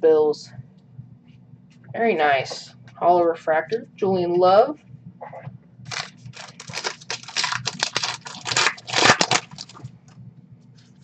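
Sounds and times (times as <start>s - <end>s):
foil wrapper tearing and crinkling: 5.9s - 9.8s.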